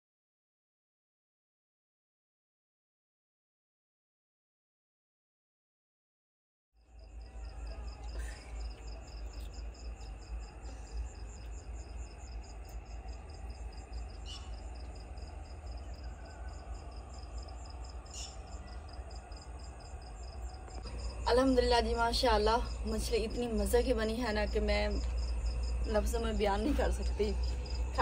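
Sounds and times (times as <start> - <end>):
crickets chirping: 6.8 - 28.0.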